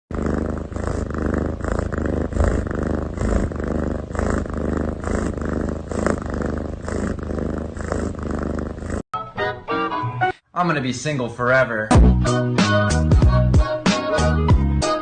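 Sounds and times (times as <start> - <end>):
cat purring: 0.1 - 9.1.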